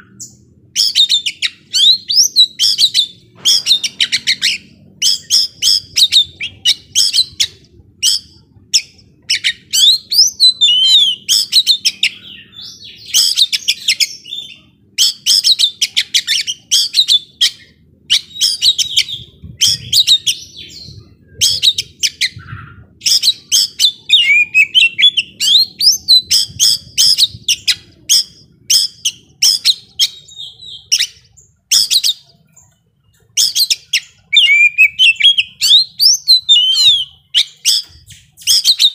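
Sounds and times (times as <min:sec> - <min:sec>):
magpie-robin singing: 0:00.0 - 0:38.9.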